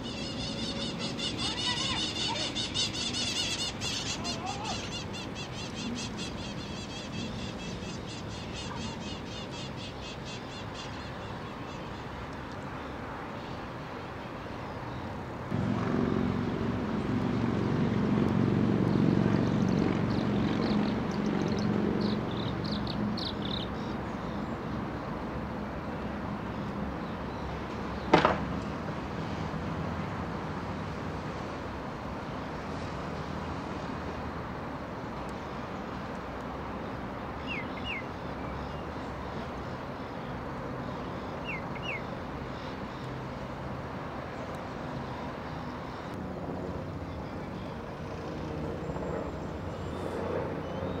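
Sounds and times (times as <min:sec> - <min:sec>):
outdoor background rumble: 0:15.4 - 0:35.6
sharp crack: 0:28.1 - 0:28.6.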